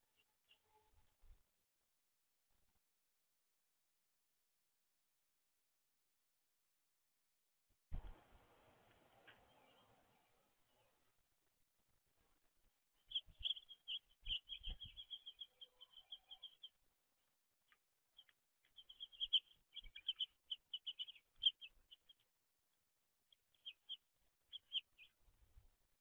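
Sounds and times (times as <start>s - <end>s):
small songbirds chirping: 0.0s - 1.0s, 8.9s - 11.2s, 12.9s - 22.4s, 23.3s - 25.4s.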